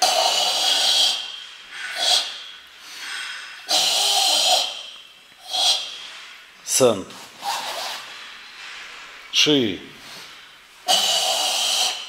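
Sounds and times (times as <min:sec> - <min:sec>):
forceful hissing breaths: 0:00.0 - 0:06.6, 0:10.0 - 0:12.0.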